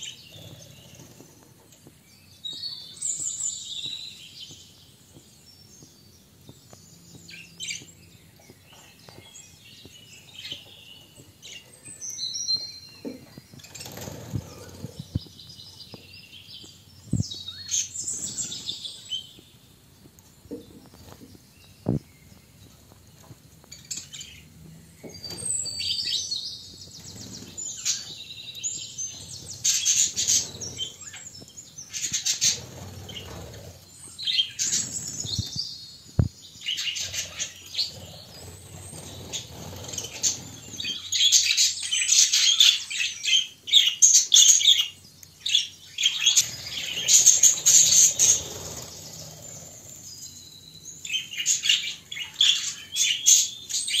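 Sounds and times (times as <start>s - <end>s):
budgerigars chirping and warbling: 0.0s - 1.6s, 9.8s - 16.0s, 23.7s - 35.7s, 36.5s - 50.4s, 51.0s - 54.0s.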